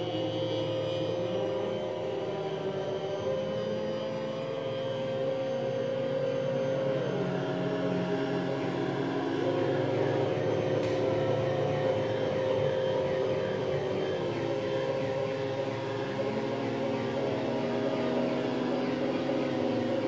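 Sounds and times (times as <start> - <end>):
electronic oscillator drone: 0.0 - 20.0.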